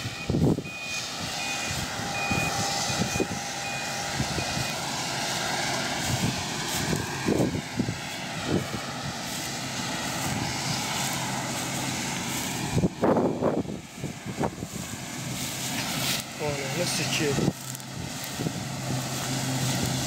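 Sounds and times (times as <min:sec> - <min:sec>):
reversing alarm beeping: 0:00.0 - 0:04.9
combine harvester running: 0:00.0 - 0:20.0
wind buffeting microphone: 0:00.0 - 0:20.0.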